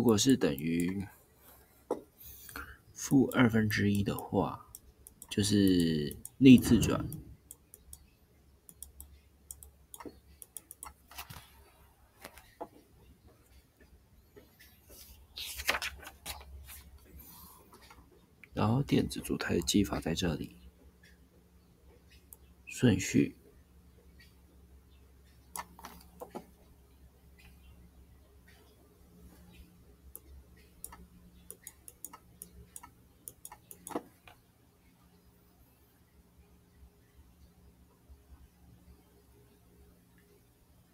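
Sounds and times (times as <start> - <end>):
low steady hum: 0.0 - 15.8
pointing device clicking: 30.2 - 34.0.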